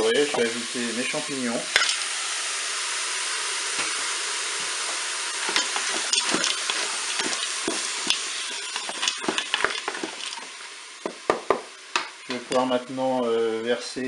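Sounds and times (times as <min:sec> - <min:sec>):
food sizzling in hot oil: 0:00.0 - 0:13.5
wooden spatula scraping a bowl: 0:05.5 - 0:10.5.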